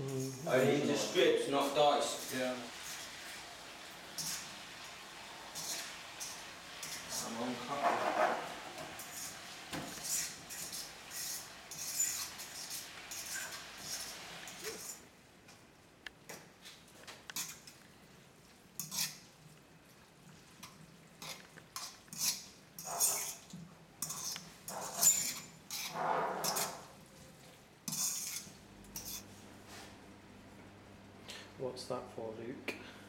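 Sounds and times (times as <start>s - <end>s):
metal utensil scraping a wok: 4.1s - 4.8s, 5.5s - 15.0s, 18.8s - 19.2s, 21.2s - 27.0s, 27.8s - 29.4s.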